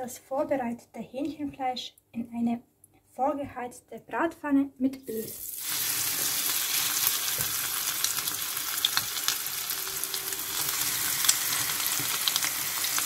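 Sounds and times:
food frying in hot oil: 0:05.2 - 0:13.0
oil crackles and pops: 0:05.4 - 0:13.0.

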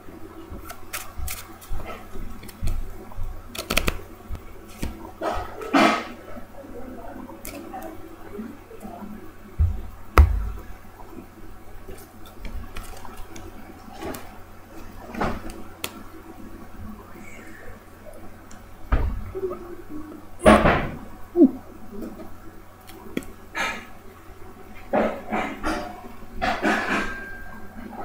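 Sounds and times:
playing cards shuffling: 0:03.5 - 0:04.0, 0:04.7 - 0:05.0, 0:12.5 - 0:14.2
dull thumps: 0:09.6 - 0:10.6.

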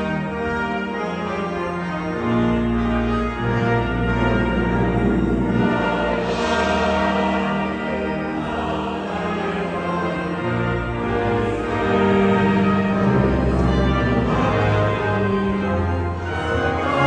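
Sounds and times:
slow sustained chords music: 0:00.0 - 0:17.0
low bass line: 0:02.7 - 0:08.0, 0:12.5 - 0:16.2.

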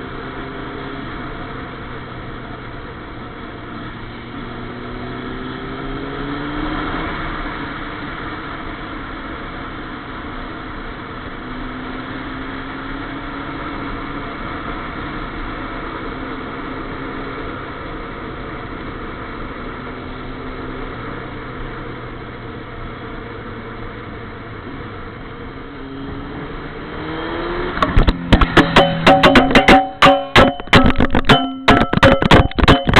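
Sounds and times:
motorcycle engine running: 0:07.2 - 0:32.9.

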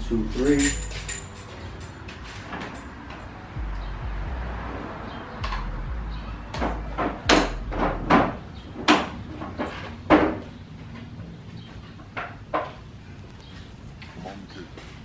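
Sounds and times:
sharp knocks and thuds: 0:06.5 - 0:10.4.

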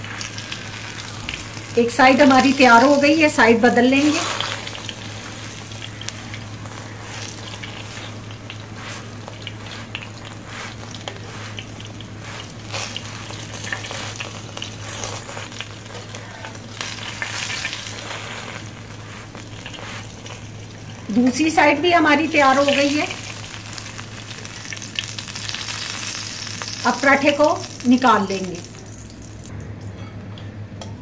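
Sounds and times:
flatbread sizzling and crackling: 0:00.0 - 0:29.5
low steady hum: 0:00.0 - 0:31.0
metal spatula scraping: 0:03.9 - 0:20.6.

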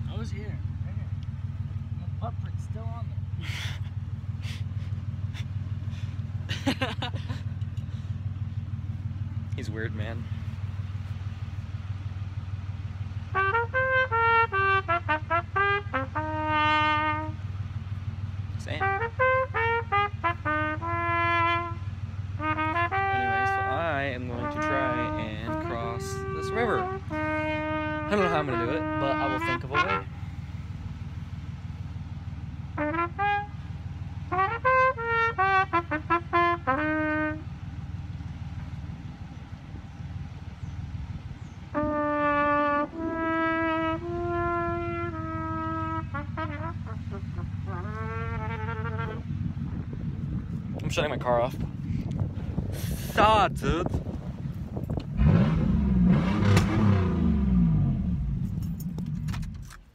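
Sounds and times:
steady low hum: 0:00.0 - 0:59.8
car engine idling: 0:00.0 - 0:59.9
trumpet playing short notes: 0:13.3 - 0:17.5, 0:18.6 - 0:30.5, 0:32.8 - 0:33.7, 0:34.3 - 0:37.5, 0:41.7 - 0:49.3.

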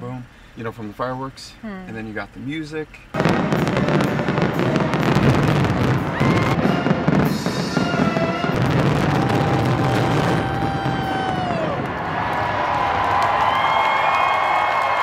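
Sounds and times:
fireworks crackling and banging: 0:03.2 - 0:14.9.

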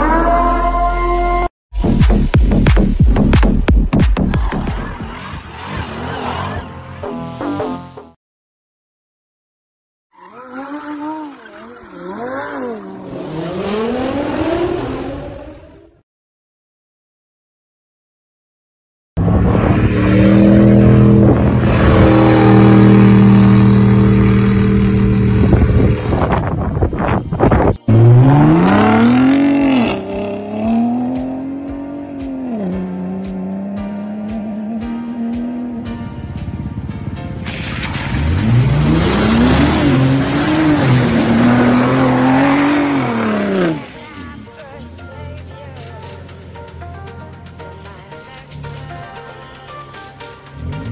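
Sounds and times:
truck engine at high revs: 0:19.2 - 0:44.6
tyres churning mud and water: 0:37.4 - 0:44.5.

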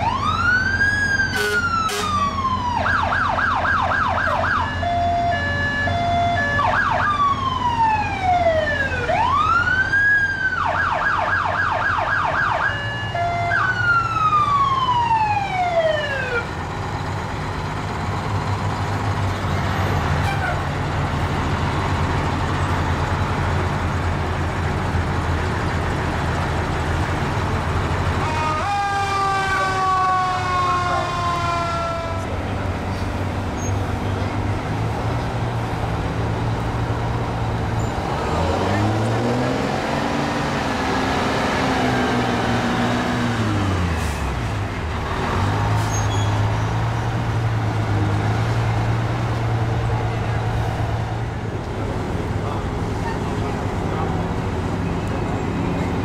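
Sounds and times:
fire truck sirens: 0:00.0 - 0:56.0
truck engines rumbling: 0:00.0 - 0:56.0
multi-tone horn blast: 0:01.3 - 0:02.3.

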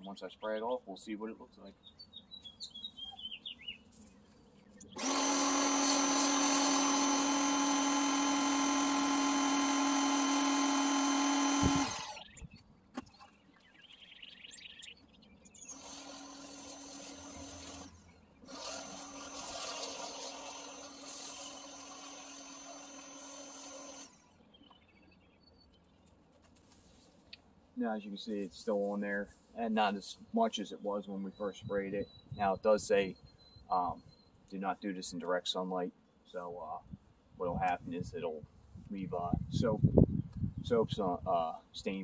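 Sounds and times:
pressure washer motor hum: 0:05.0 - 0:12.3.

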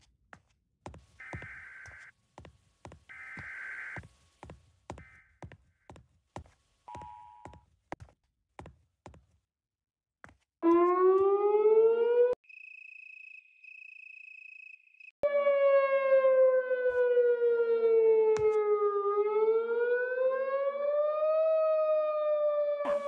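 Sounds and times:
warning siren wailing: 0:01.2 - 0:02.1, 0:03.1 - 0:04.0, 0:10.6 - 0:12.4, 0:15.2 - 0:23.0.

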